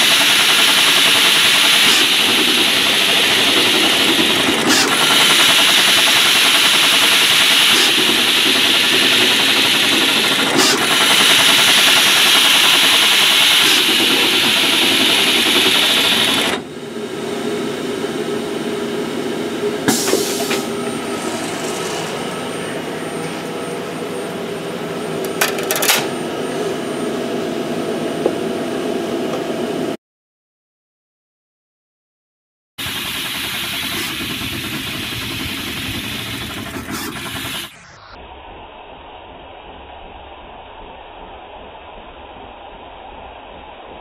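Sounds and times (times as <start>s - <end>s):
machine mechanical rattle: 25.2s - 26.2s.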